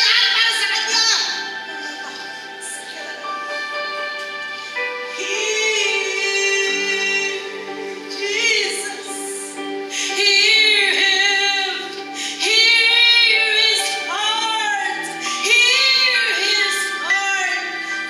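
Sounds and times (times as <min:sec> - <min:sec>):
sustained instrumental chords: 0:00.0 - 0:18.0
woman singing: 0:05.1 - 0:18.0.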